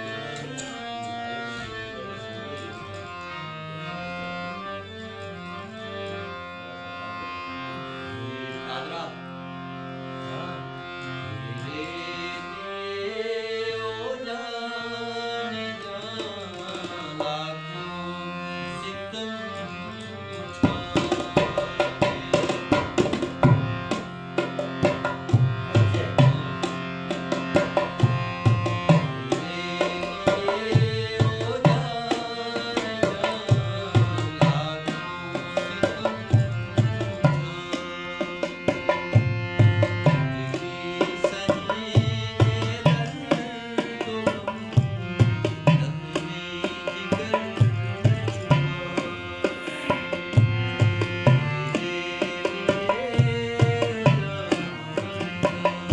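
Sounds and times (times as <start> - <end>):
harmonium melody: 0.0 - 55.9
hand drum rhythm: 20.6 - 34.6, 47.1 - 51.4, 52.8 - 55.9.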